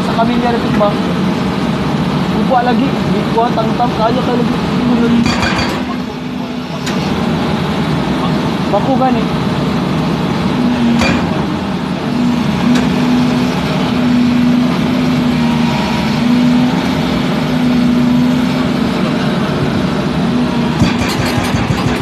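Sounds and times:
excavator engine and hydraulics humming: 0:00.0 - 0:22.0
hydraulic breaker blows: 0:10.8 - 0:19.0.

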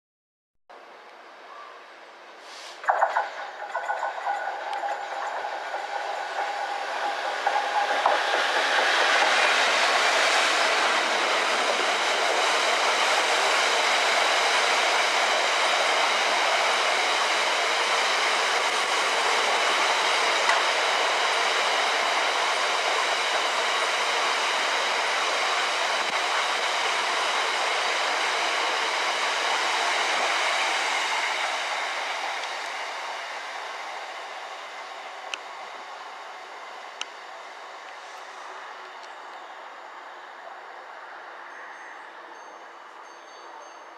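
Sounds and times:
diesel locomotive passing: 0:02.0 - 0:43.9
wagons rolling on rails: 0:02.9 - 0:30.4.

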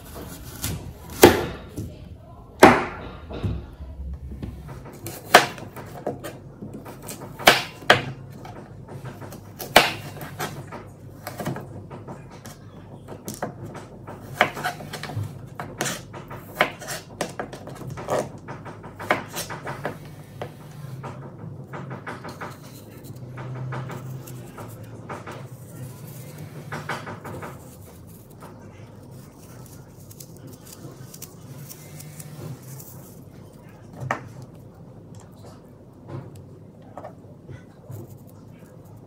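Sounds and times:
knife cutting apple: 0:00.0 - 0:01.8, 0:04.8 - 0:08.4, 0:09.2 - 0:11.6, 0:14.2 - 0:18.4, 0:22.2 - 0:34.6.

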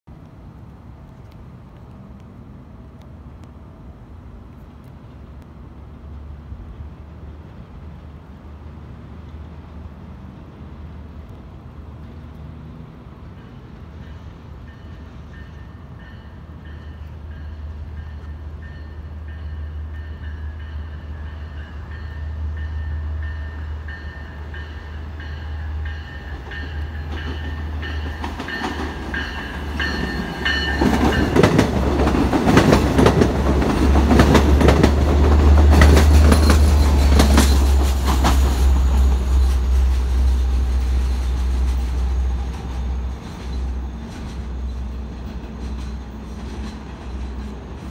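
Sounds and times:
diesel train engine rumble: 0:00.1 - 0:47.9
train wheels clattering over rail joints: 0:26.0 - 0:47.9.

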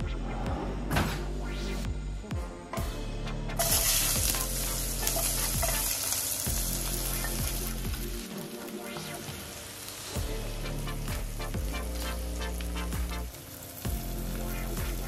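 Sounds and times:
onions sizzling in hot oil: 0:03.6 - 0:15.0.

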